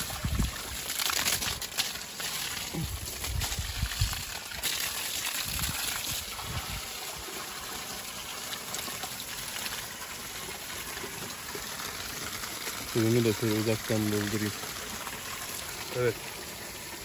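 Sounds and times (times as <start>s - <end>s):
water gushing from garden hose: 0.0s - 17.0s.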